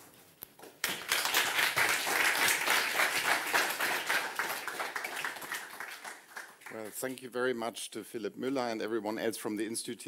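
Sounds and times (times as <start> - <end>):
audience applauding: 0.8 - 7.0.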